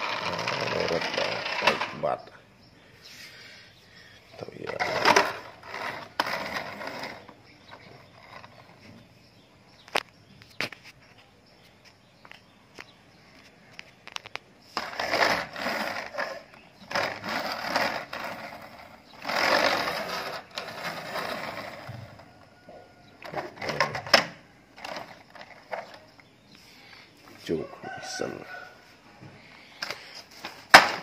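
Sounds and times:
toy wheels rolling on floor: 0.0s - 2.3s, 4.4s - 10.1s, 13.4s - 26.3s, 29.8s - 31.0s.

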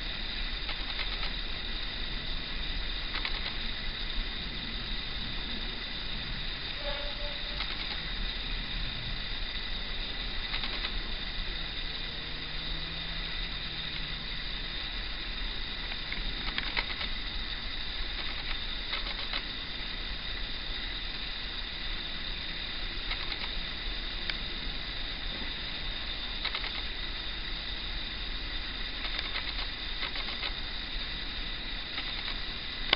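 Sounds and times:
steady hiss: 0.0s - 32.9s
faint clicks: 0.5s - 1.4s, 3.0s - 3.8s, 6.7s - 8.1s, 10.4s - 11.1s, 15.8s - 17.3s, 18.1s - 19.6s, 23.0s - 23.6s, 26.4s - 26.9s, 29.0s - 30.6s, 31.9s - 32.9s
distant diesel locomotive hum: 1.6s - 18.6s.

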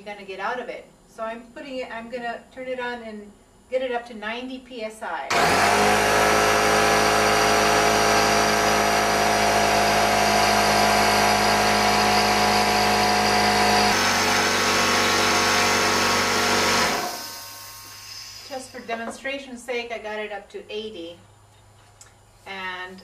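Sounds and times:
air compressor running: 5.3s - 19.0s.

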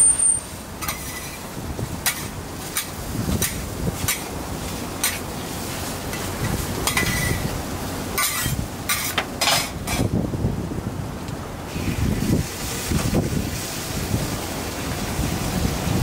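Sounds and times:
metal spatula scraping griddle: 0.8s - 1.4s, 2.0s - 4.3s, 6.1s - 7.5s, 8.2s - 10.1s.

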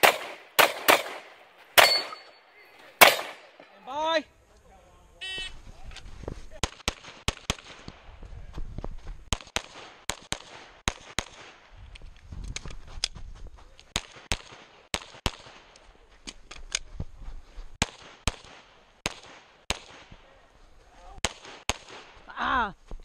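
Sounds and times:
pistol shots: 0.0s - 2.3s, 3.0s - 3.6s.

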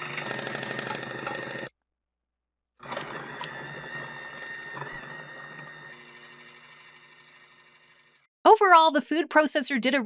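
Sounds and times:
food processor motor running: 0.0s - 1.8s, 2.8s - 8.3s.

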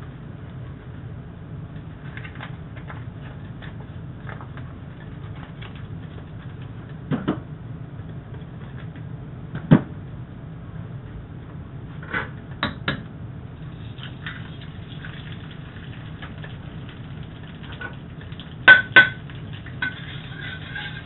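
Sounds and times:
butter crackling in a wok: 13.6s - 21.0s.

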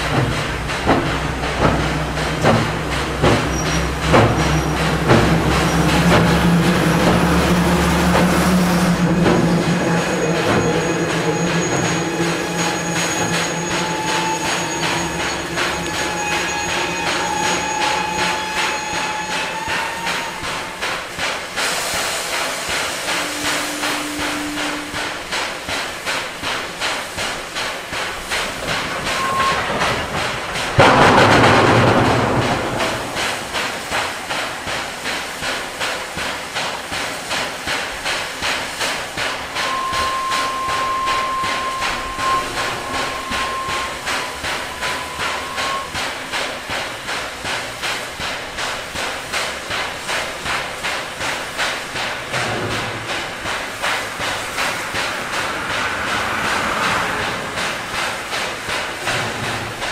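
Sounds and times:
loud rush of steam: 0.0s - 59.9s
steam locomotive exhaust beating: 0.0s - 59.9s.

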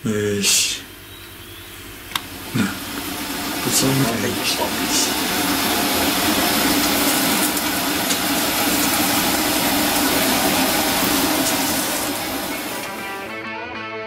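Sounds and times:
batter frying in a pan: 2.4s - 13.1s.

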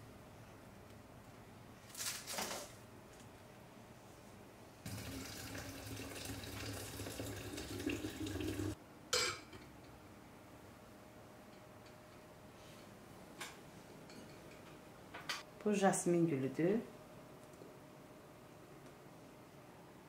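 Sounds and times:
water pouring into a glass carafe: 4.9s - 8.8s.

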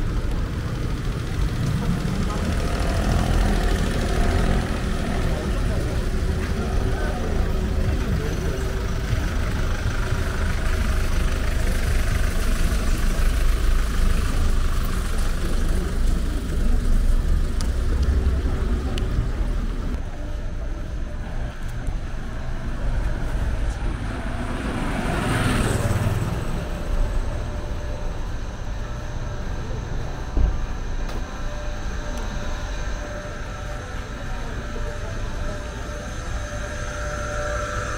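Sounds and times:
cars passing: 0.0s - 37.9s
deep traffic rumble: 0.0s - 37.9s
vehicle passing close: 22.5s - 33.7s.

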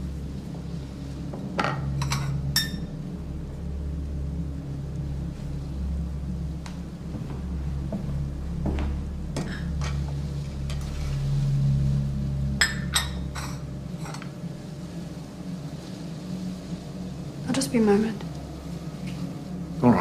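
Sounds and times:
low steady drone: 0.0s - 20.0s
crockery and cutlery clinking: 1.6s - 2.9s, 12.6s - 14.3s.

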